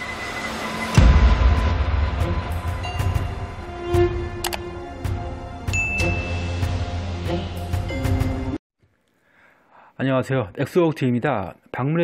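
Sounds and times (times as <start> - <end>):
heavy bass hit: 1.0 - 5.3.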